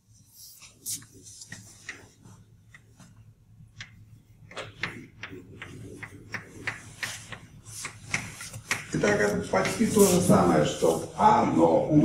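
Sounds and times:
chalk tapping and scraping on blackboard: 0:01.0 - 0:10.6.

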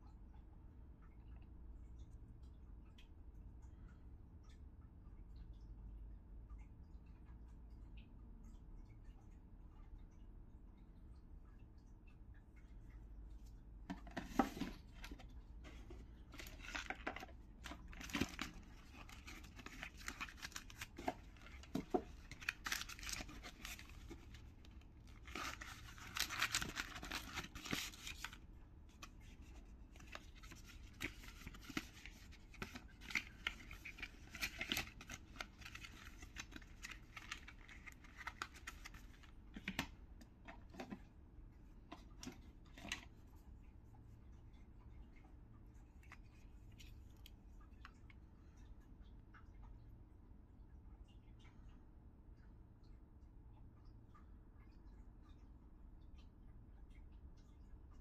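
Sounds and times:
cardboard packaging rustling: 0:13.9 - 0:28.4, 0:29.0 - 0:39.9.

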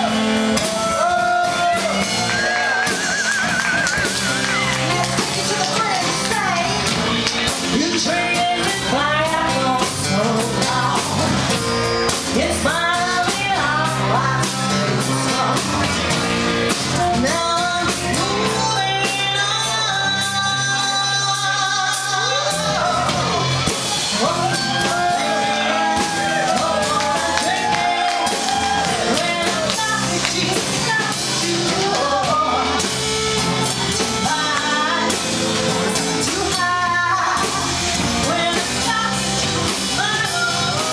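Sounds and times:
drum kit: 0:00.0 - 0:40.9
guitars playing: 0:00.0 - 0:40.9
woman singing: 0:04.6 - 0:06.9, 0:07.7 - 0:11.4, 0:12.3 - 0:16.0, 0:16.7 - 0:23.3, 0:24.1 - 0:32.9, 0:33.9 - 0:40.9.

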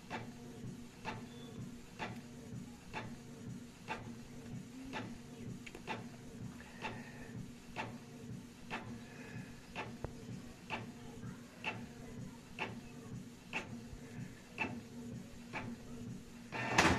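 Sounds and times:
faint printer whine: 0:00.0 - 0:16.9
printer motor hum: 0:00.0 - 0:16.9
printer clicking: 0:16.5 - 0:16.9.

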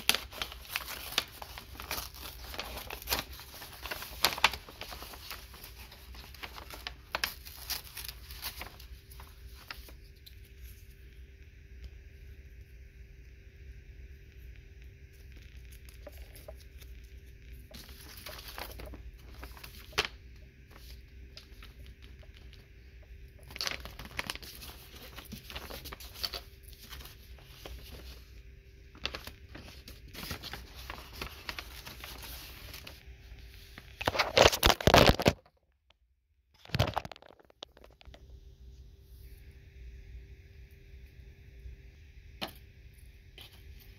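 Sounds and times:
paper crumpling and tearing: 0:00.0 - 0:10.8, 0:15.4 - 0:22.6, 0:23.4 - 0:35.4, 0:36.6 - 0:38.1
paper rustling and crinkling: 0:00.0 - 0:11.0, 0:15.2 - 0:22.6, 0:23.4 - 0:35.4, 0:36.6 - 0:38.2
faint steady hum: 0:00.0 - 0:43.9.

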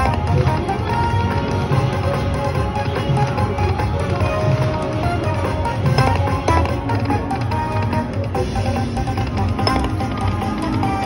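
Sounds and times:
electronic slot machine music: 0:00.0 - 0:11.0.

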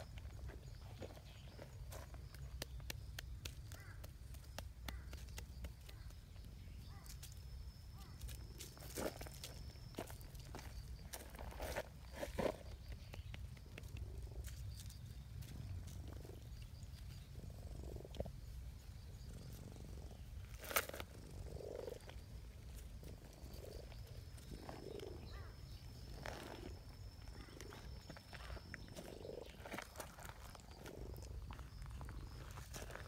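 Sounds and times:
cat purring: 0:15.4 - 0:25.5.

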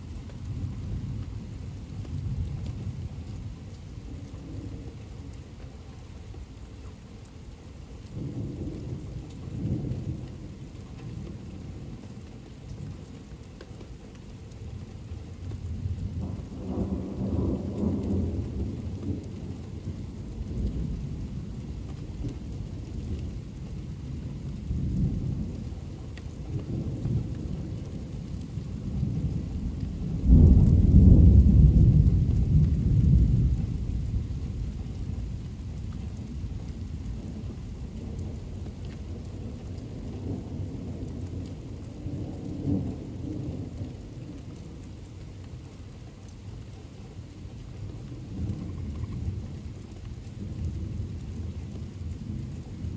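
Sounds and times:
steady rain: 0:00.0 - 0:52.9
thunder rolling: 0:29.2 - 0:34.4.

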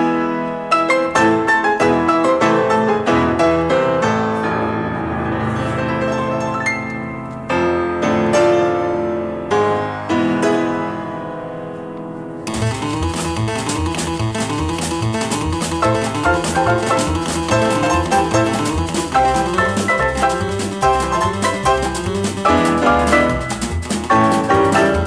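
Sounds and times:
piano chords and figures: 0:00.0 - 0:25.0
steady bass pulse: 0:12.5 - 0:21.1.

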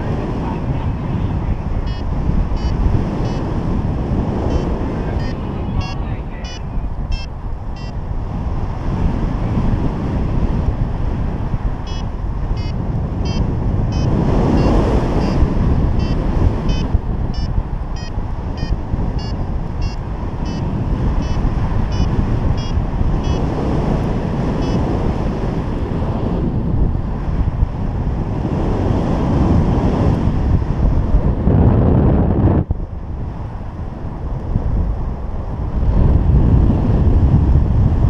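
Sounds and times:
wind buffeting microphone: 0:00.0 - 0:38.0
short high beeps: 0:01.8 - 0:03.4, 0:04.5 - 0:08.0, 0:11.9 - 0:15.4, 0:16.0 - 0:20.6, 0:21.2 - 0:23.4.

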